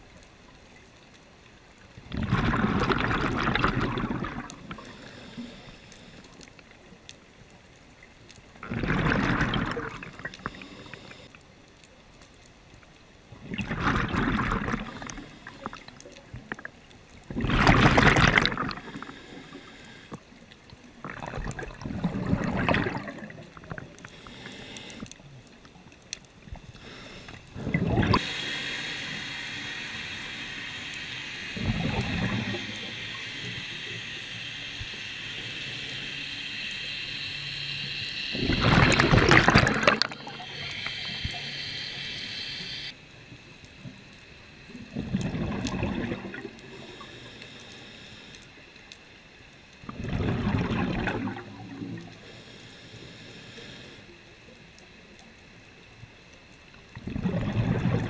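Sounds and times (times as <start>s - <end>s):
underwater bubbles gurgling: 0.0s - 11.5s, 12.7s - 58.0s
steady high whine: 26.8s - 44.8s.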